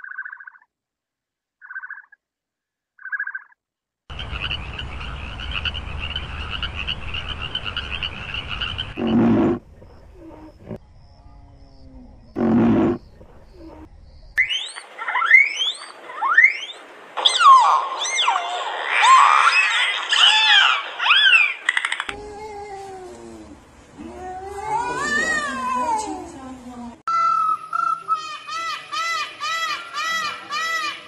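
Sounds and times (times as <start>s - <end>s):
large animal calls: 7.6s - 16.6s
dolphins whistling: 14.4s - 21.6s.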